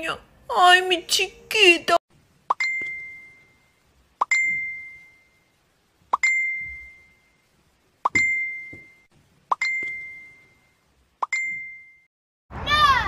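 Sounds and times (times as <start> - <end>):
bell-like ding: 11.4 - 12.1.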